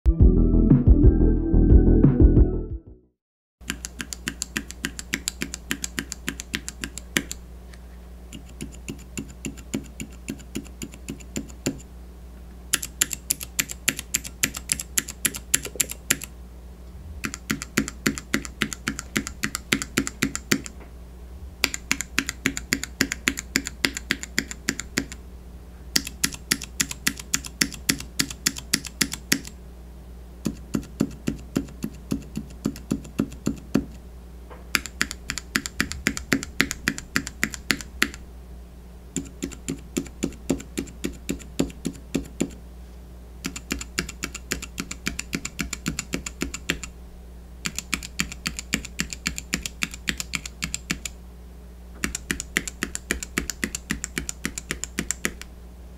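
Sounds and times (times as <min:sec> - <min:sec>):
keyboard switches clacking: 0:03.6 - 0:07.4, 0:12.7 - 0:16.3, 0:17.2 - 0:20.8, 0:21.6 - 0:25.2, 0:25.9 - 0:29.6, 0:30.5 - 0:34.0, 0:34.7 - 0:38.2, 0:39.2 - 0:42.6, 0:43.4 - 0:46.9, 0:47.6 - 0:51.2, 0:52.0 - 0:55.5.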